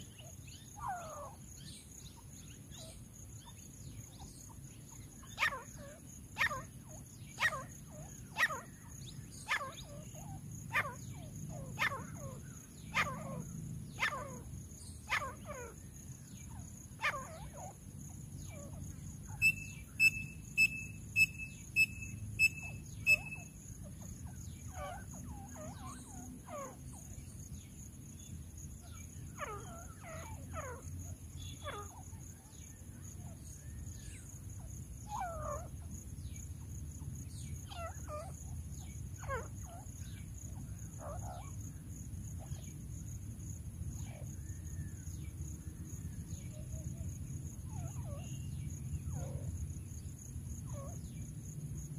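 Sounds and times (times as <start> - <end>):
francolins calling: 0.0 - 36.7, 37.3 - 42.8, 43.9 - 51.4.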